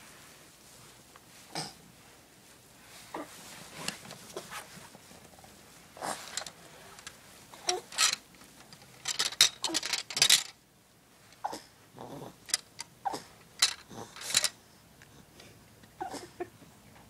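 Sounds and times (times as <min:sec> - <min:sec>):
plastic toy keys clacking: 0:07.7 - 0:10.6, 0:13.6 - 0:14.5.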